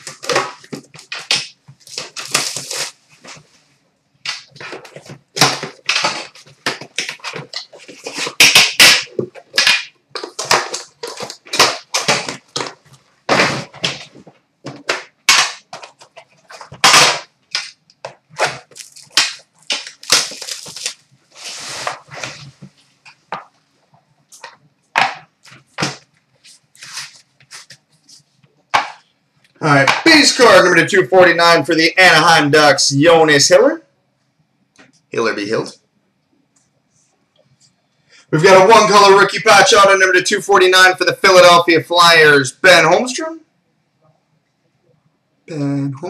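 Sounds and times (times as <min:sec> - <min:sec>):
packaging crinkling and rustling: 0:00.0 - 0:03.5, 0:04.4 - 0:15.0, 0:15.6 - 0:23.5.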